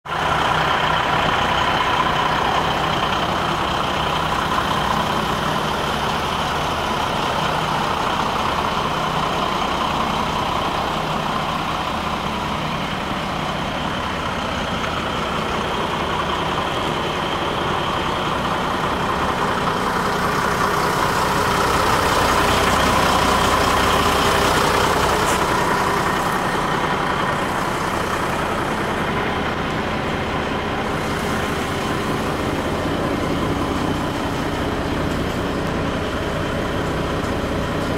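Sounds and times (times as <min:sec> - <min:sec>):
diesel engine idling: 0:00.0 - 0:37.9.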